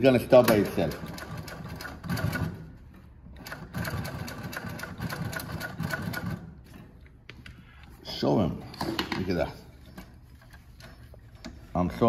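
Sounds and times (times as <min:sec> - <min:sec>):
industrial sewing machine stitching: 0:00.0 - 0:02.7, 0:03.4 - 0:06.5.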